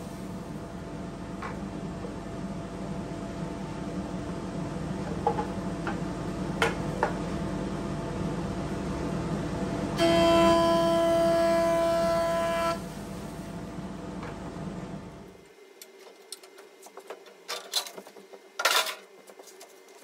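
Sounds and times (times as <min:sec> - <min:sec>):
planer cutting wood whine: 0:10.0 - 0:12.9
planer humming: 0:10.0 - 0:13.3.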